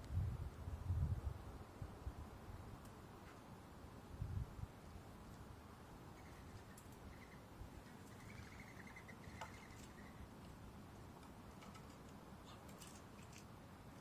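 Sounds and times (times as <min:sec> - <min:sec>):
faint high chirps: 0:06.1 - 0:10.3.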